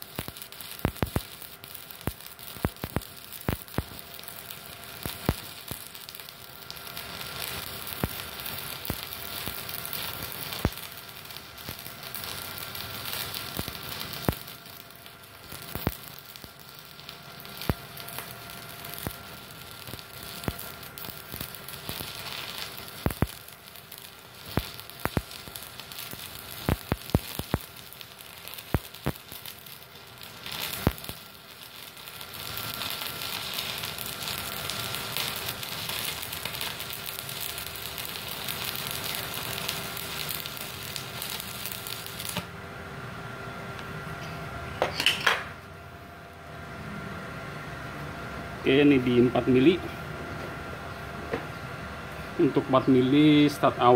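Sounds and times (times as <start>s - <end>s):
sharp welding pops: 0.0s - 42.6s
welding arc crackling: 0.0s - 42.8s, 52.4s - 53.9s.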